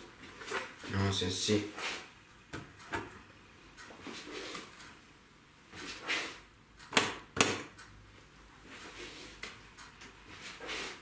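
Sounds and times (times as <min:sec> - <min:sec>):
utensil scraping: 0:10.3 - 0:11.0.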